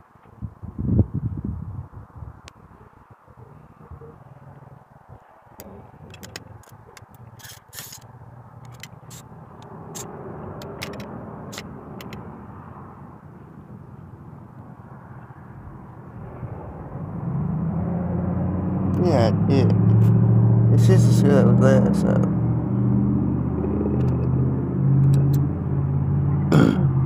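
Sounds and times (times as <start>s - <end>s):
vehicle engine rumble: 0.0s - 27.0s
air rifle parts clicking: 5.6s - 12.2s.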